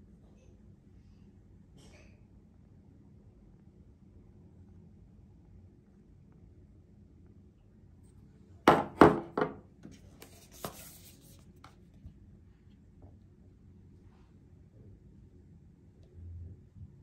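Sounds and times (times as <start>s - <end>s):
glass bottles knocking on countertop: 8.7s - 9.6s.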